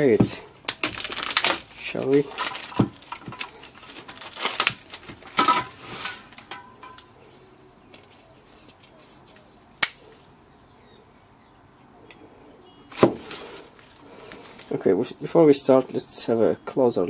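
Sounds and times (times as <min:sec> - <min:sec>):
plastic shrink wrap rustling: 0:00.0 - 0:09.5, 0:12.9 - 0:14.8.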